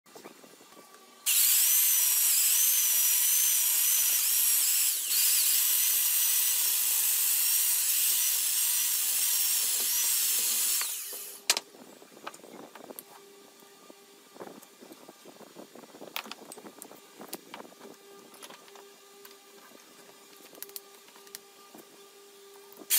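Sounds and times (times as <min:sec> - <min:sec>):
electric chainsaw cutting wood: 0:01.2 - 0:11.6.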